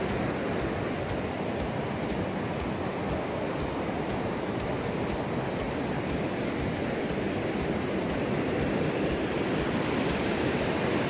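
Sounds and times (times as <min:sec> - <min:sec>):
floodwater rushing over a dam: 0:00.0 - 0:11.0.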